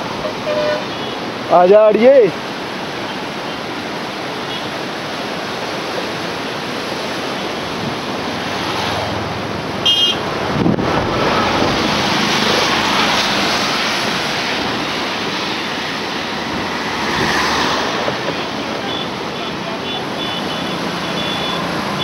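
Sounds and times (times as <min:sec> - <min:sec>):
river water rushing: 0:00.0 - 0:22.0
road noise: 0:00.0 - 0:22.0
car passing: 0:05.0 - 0:22.0
wind buffeting microphone: 0:09.2 - 0:18.2
high beep: 0:20.2 - 0:21.6.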